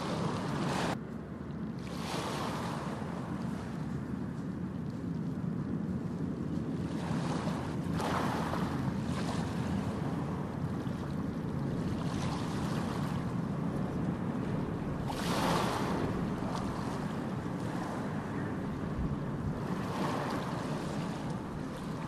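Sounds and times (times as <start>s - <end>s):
surf rushing: 0.0s - 1.0s, 6.8s - 22.0s
wave breaking: 0.0s - 1.0s, 1.8s - 4.4s, 6.7s - 22.0s.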